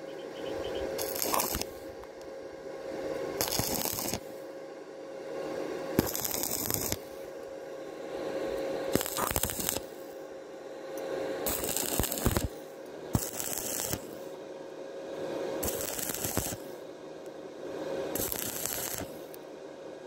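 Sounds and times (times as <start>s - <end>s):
low hum: 0.0s - 20.0s
welding arc crackling: 0.6s - 2.1s, 3.4s - 4.3s, 6.0s - 7.2s, 8.9s - 10.2s, 11.4s - 14.2s, 15.6s - 16.7s, 18.1s - 19.4s.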